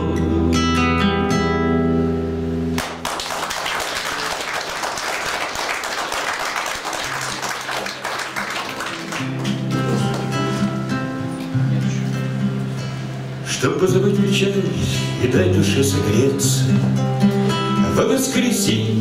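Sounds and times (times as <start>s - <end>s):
acoustic guitar chord ringing: 0.0s - 3.0s, 8.4s - 19.0s
guitar picking low notes: 0.0s - 3.0s, 7.1s - 19.0s
audience applause: 2.8s - 10.6s.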